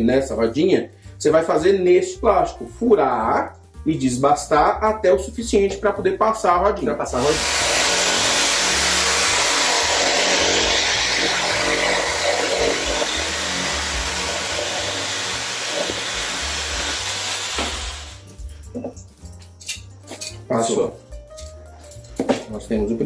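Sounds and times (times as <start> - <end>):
electric drill boring plastic: 7.2 - 18.2.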